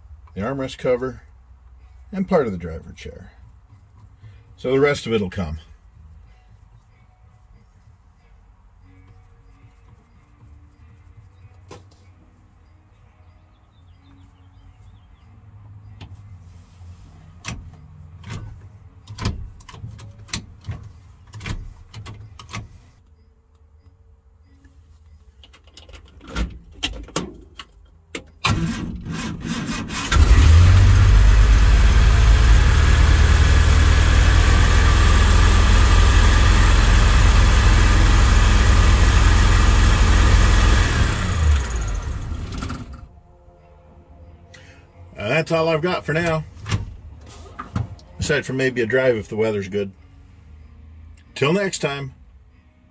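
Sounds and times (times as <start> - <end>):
car engine cranking and running: 26.8 - 43.1.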